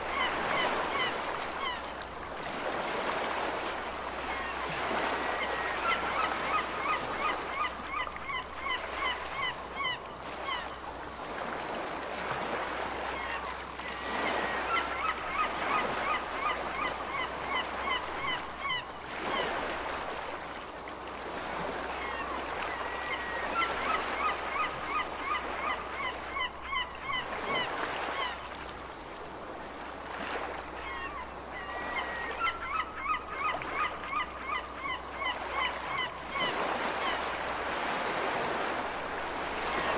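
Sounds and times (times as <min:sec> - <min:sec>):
waves washing in and out: 0:00.0 - 0:39.9
gulls laughing calls: 0:04.3 - 0:10.8, 0:30.8 - 0:38.8.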